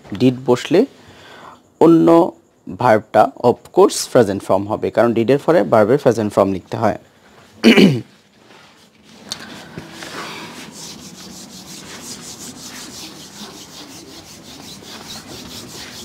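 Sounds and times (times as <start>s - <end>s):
eraser rubbing on whiteboard: 9.8s - 16.0s.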